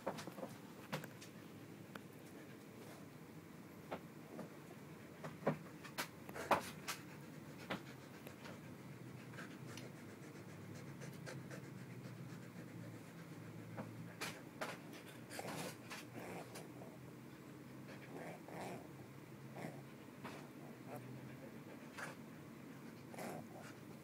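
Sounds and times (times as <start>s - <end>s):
dog panting faintly: 6.3s - 24.0s.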